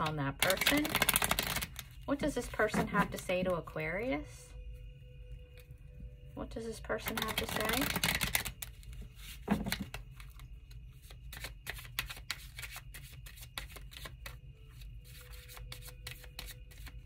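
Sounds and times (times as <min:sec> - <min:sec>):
cards being shuffled: 0:00.4 - 0:01.9, 0:07.0 - 0:17.0.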